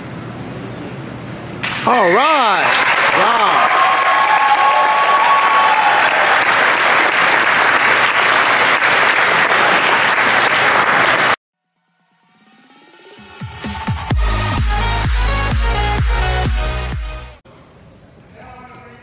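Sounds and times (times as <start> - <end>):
audience applauding: 1.9 - 11.4.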